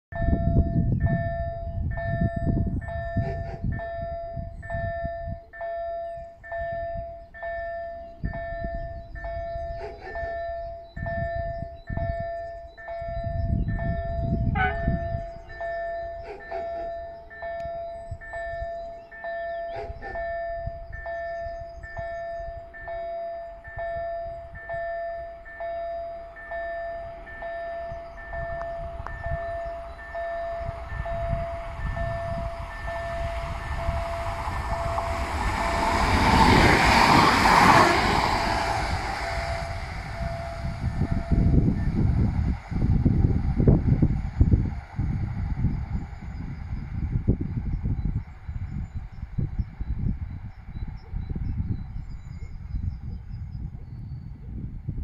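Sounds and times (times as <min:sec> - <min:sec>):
level crossing warning tone: 0:00.1 - 0:42.3
wind rumbling on microphone: 0:00.1 - 0:55.0.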